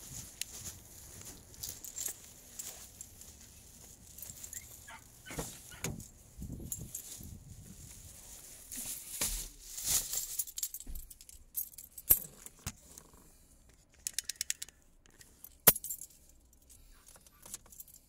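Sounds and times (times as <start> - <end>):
rustling: 0.0 - 13.1
sharp clicks: 14.0 - 15.2
car keys jangling: 14.0 - 18.0.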